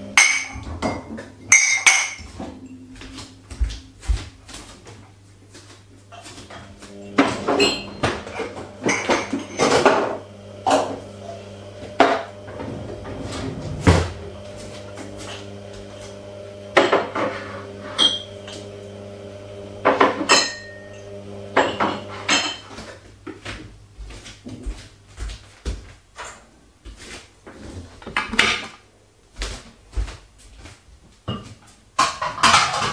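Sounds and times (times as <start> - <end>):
steady low hum: 0.0 - 22.4
plastic bowls and glasses clattering: 0.2 - 4.8, 6.1 - 11.0, 19.8 - 23.6, 31.2 - 32.9.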